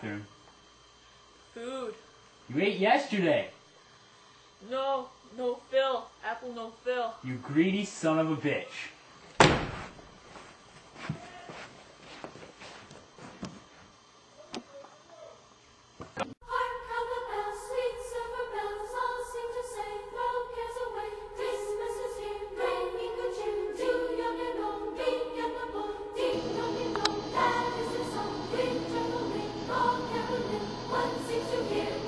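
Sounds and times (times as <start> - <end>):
choir singing over music: 16.4 - 32.0.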